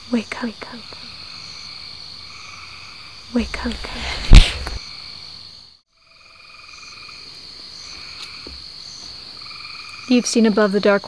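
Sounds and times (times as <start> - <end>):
frogs and insects chorus: 0.1 - 3.8, 4.9 - 11.0
rush of noise with low thump: 3.4 - 4.8.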